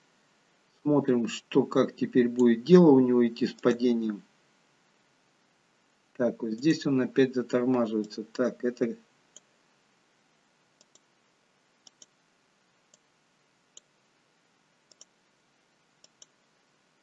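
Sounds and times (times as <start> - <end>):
computer mouse clicks: 10.8 - 11.1, 11.8 - 12.2, 12.9 - 13.1, 14.9 - 15.2, 16.0 - 16.4.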